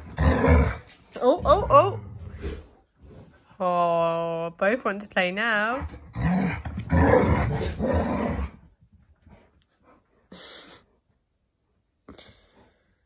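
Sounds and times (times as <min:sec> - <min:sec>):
dogs growling while play-fighting: 0:00.0 - 0:03.3, 0:05.8 - 0:08.7.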